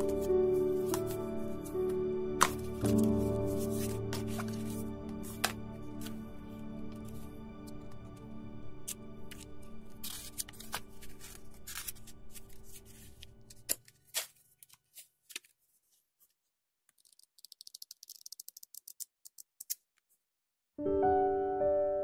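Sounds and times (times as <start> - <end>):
paper rustling and crinkling: 0.0 - 6.2, 8.8 - 18.7.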